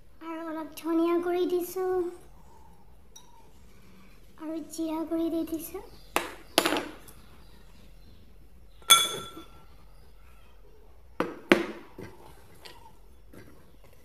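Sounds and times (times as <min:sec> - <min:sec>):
kitchenware clinking and knocking: 0:06.2 - 0:07.0, 0:08.8 - 0:09.6.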